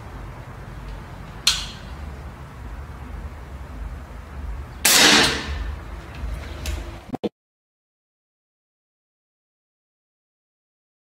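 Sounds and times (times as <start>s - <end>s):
air rifle crack: 4.8s - 5.7s
loud air rifle blast: 4.8s - 5.7s.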